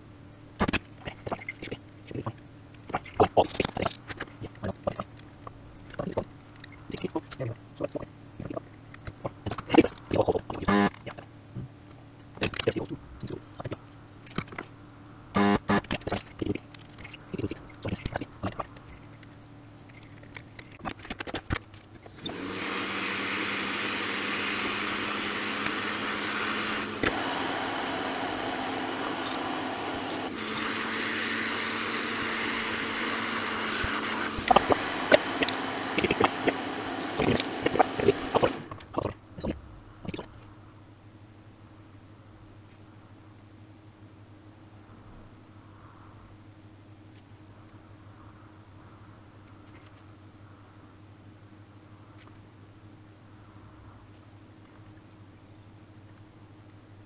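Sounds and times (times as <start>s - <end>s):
whooshing motor with low hum: 22.0s - 40.6s.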